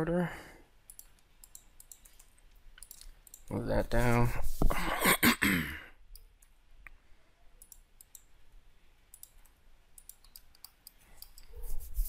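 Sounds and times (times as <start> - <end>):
mouse and keyboard clicks: 0.9 - 3.5, 9.1 - 11.6.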